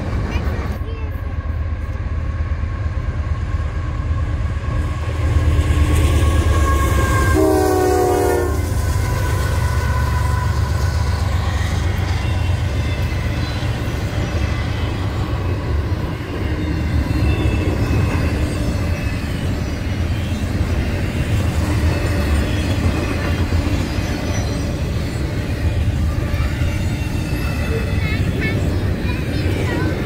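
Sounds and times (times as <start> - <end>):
diesel locomotives rumbling: 0.0 - 30.0
train wheels on rails: 0.0 - 30.0
train horn blast: 6.3 - 9.9.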